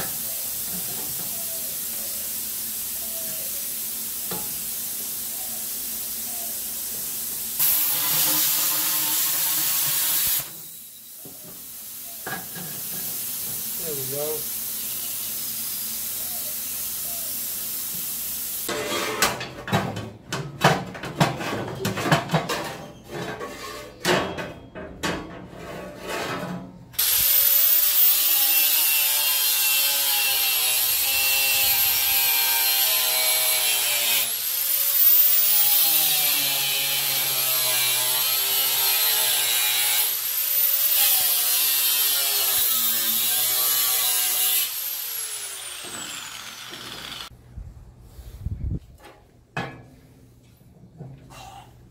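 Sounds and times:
steady hiss: 0.0s - 18.7s
metal clanks and scrapes: 7.6s - 10.0s, 18.7s - 26.9s
angle grinder cutting metal: 7.6s - 11.2s, 27.0s - 47.3s.

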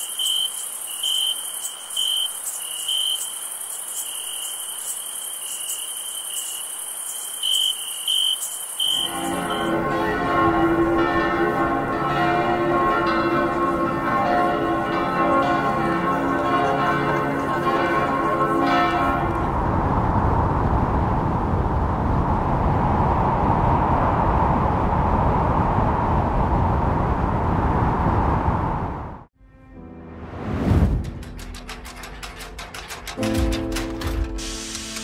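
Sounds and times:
church bells pealing: 8.9s - 19.9s
steady rushing noise: 18.2s - 29.3s.

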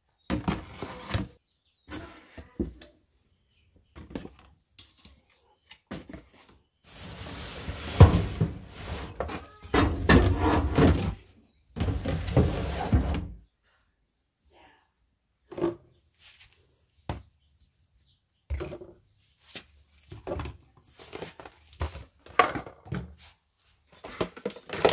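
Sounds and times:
cardboard box rubbing across floor: 6.9s - 9.2s
plastic bottles knocking: 24.0s - 24.9s.

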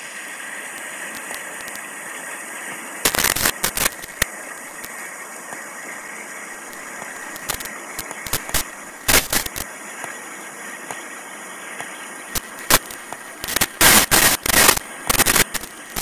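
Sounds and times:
water rushing from culvert pipe: 0.0s - 16.0s
crackling pops: 0.7s - 1.9s, 3.0s - 5.7s, 6.6s - 10.2s, 11.8s - 16.0s.

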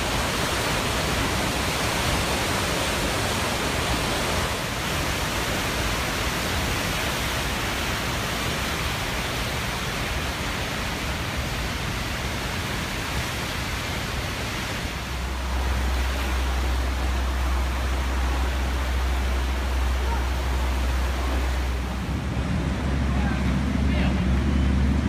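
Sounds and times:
water rushing through rapids: 0.0s - 25.0s
deep low rumble: 15.1s - 25.0s.

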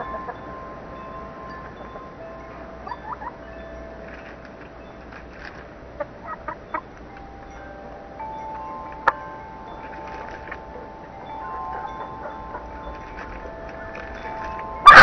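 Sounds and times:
wind chime ringing: 0.0s - 15.0s
hens clucking: 5.9s - 7.1s, 9.8s - 15.0s.

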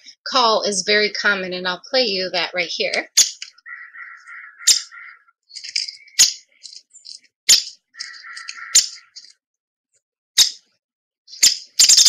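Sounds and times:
woodpecker pik calls: 3.0s - 9.4s
woodpecker rattling whinny: 3.3s - 5.2s, 7.7s - 9.3s.

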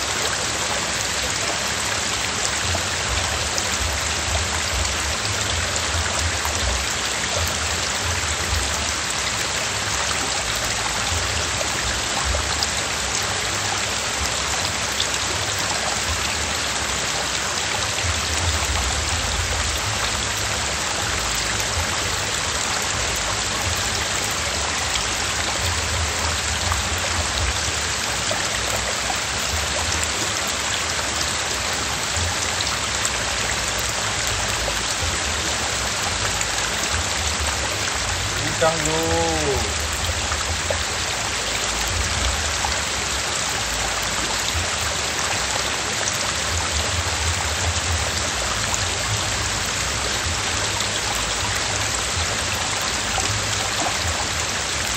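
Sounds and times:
stream running over rocks: 0.0s - 54.9s.

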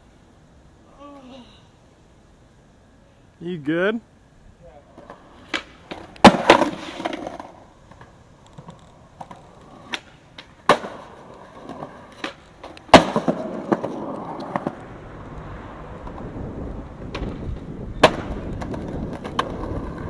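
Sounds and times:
skateboard wheels rolling on concrete: 0.0s - 20.0s
skateboard hitting concrete: 4.8s - 14.9s, 17.0s - 20.0s.

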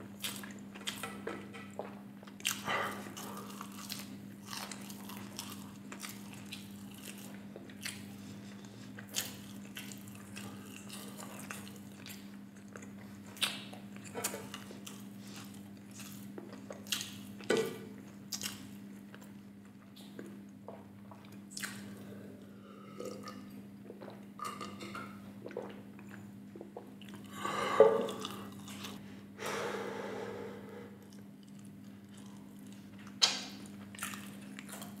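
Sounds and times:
steady low hum: 0.0s - 35.0s
man chewing and swallowing: 0.2s - 29.0s, 31.0s - 35.0s
man drinking from a glass: 26.6s - 28.8s.

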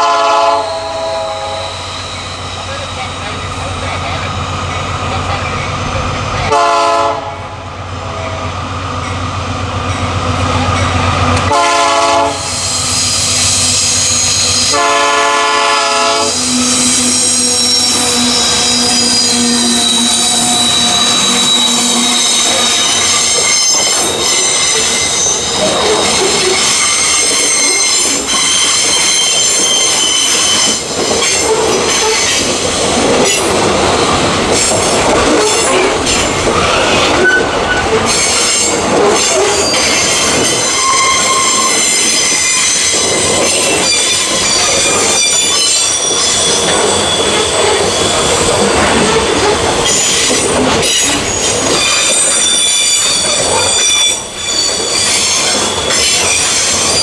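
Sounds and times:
train wheels squealing on rails: 0.0s - 6.5s, 8.1s - 57.0s
train wheels rumbling on track: 0.0s - 57.0s.

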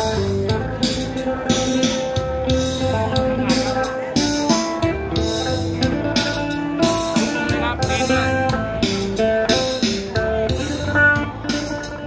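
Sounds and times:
plucked lute melody: 0.0s - 12.0s.

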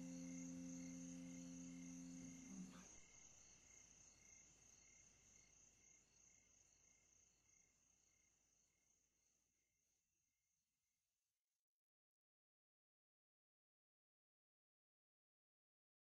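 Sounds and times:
held low musical note: 0.0s - 2.8s
crickets chirping: 0.0s - 8.8s.

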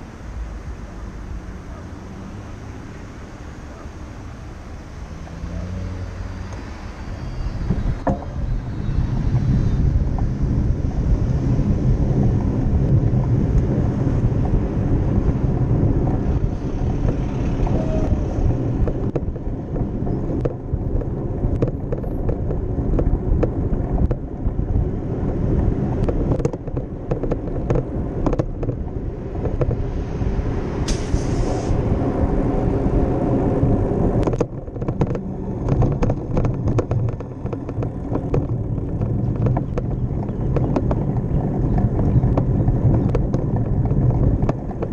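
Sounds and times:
bicycle road rumble: 0.0s - 44.9s
cars driving: 0.0s - 44.9s
wind on camera: 0.0s - 44.9s
brief hiss: 30.9s - 31.8s.

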